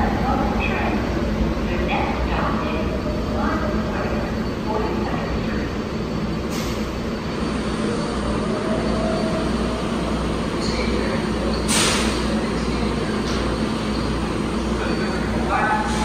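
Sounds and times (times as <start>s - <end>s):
subway train humming: 0.0s - 16.0s
air hiss: 11.7s - 12.3s.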